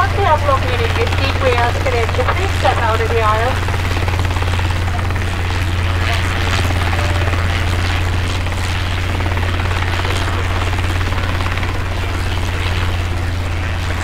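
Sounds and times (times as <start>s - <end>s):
jet engine drone and hiss: 0.0s - 14.0s.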